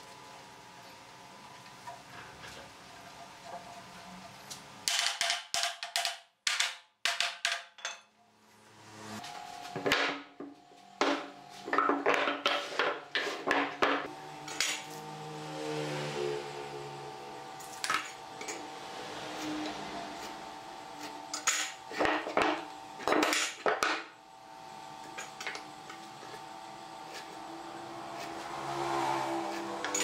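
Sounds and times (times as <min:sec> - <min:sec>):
wooden boards knocking on workbench: 0:11.0 - 0:14.1.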